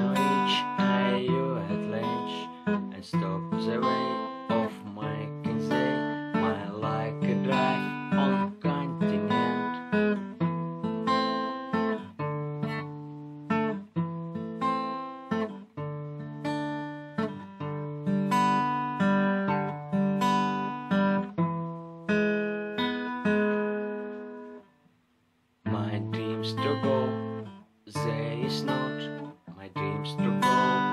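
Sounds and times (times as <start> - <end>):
acoustic guitar strumming chords: 0.0 - 24.9, 25.6 - 30.9.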